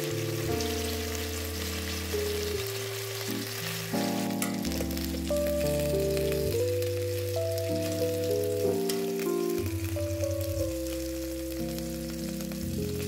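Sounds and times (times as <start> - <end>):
background music with held notes: 0.0 - 13.0
food sizzling in a pan: 0.0 - 13.0.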